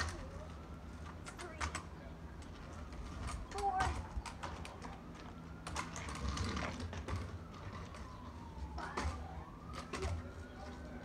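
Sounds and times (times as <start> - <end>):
faint siren wailing: 0.0 - 11.0.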